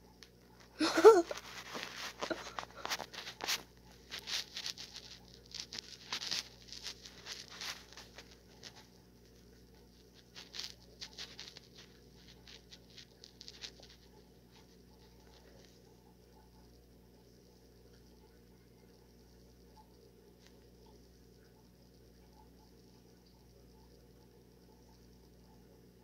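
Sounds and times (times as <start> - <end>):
box packaging crackling: 0.8 - 8.9.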